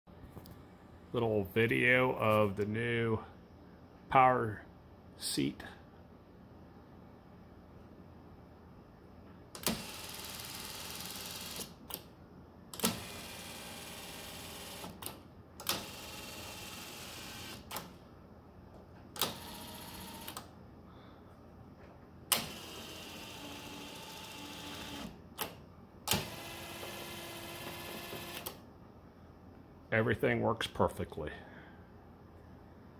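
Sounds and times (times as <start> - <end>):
power seat electric motor: 12.8 - 15.0, 15.7 - 17.7, 19.2 - 20.4, 22.4 - 25.2, 26.1 - 28.6.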